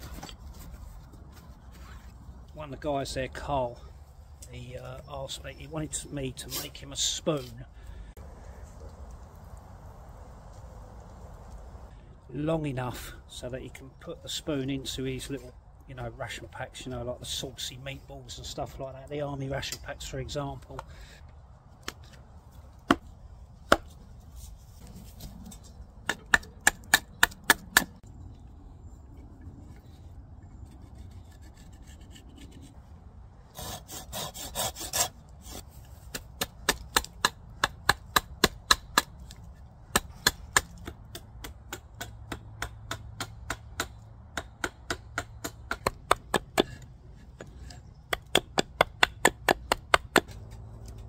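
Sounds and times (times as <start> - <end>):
hatchet chopping wood: 22.8 - 24.0, 26.0 - 28.0, 36.0 - 51.0.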